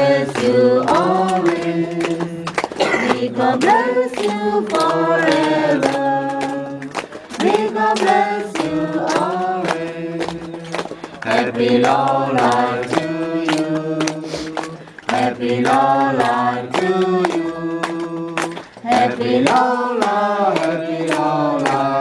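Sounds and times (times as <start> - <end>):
group singing held notes: 0.0 - 22.0.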